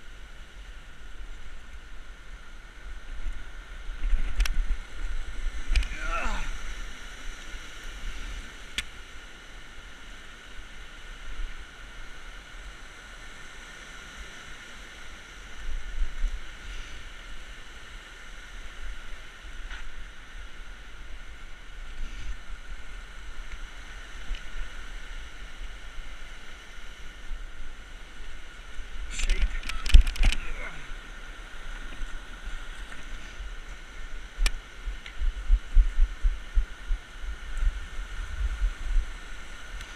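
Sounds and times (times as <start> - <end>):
river rushing over rocks: 0.0 - 39.9
wind on microphone: 15.4 - 39.9
sharp clicks: 29.2 - 30.4.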